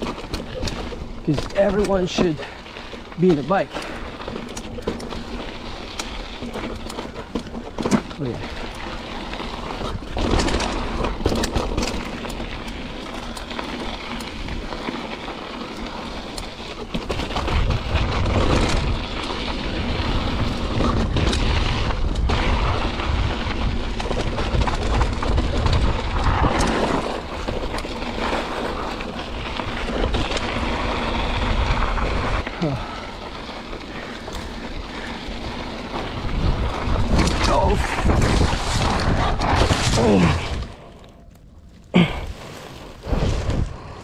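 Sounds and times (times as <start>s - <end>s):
bike knocks and rattles: 0.0s - 32.8s, 33.5s - 40.8s
bike tyres rolling: 0.0s - 44.0s
wind buffeting microphone: 34.8s - 39.6s.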